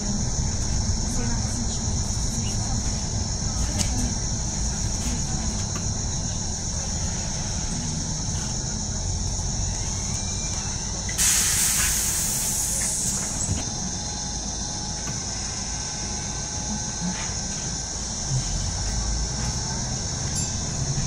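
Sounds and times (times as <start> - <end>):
bus engine rumble: 0.0 - 21.0
compressed air hiss: 11.2 - 13.5.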